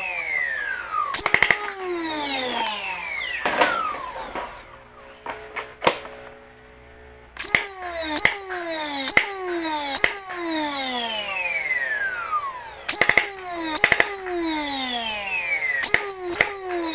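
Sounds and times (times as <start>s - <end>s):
flywheel motors whining: 0.0s - 16.9s
darts firing with sharp clicks: 1.2s - 1.8s, 7.4s - 8.5s, 9.1s - 10.4s, 12.9s - 14.3s, 15.8s - 16.9s.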